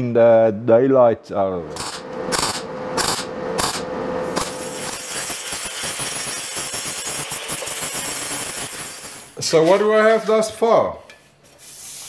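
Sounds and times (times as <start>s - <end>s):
welder bursts on sheet metal: 1.8s - 9.4s.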